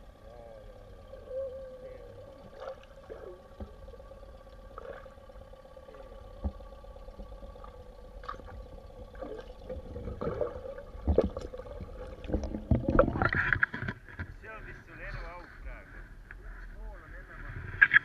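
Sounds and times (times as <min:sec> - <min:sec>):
muffled underwater water hum: 0:00.0 - 0:18.0
water sloshing: 0:01.8 - 0:14.4.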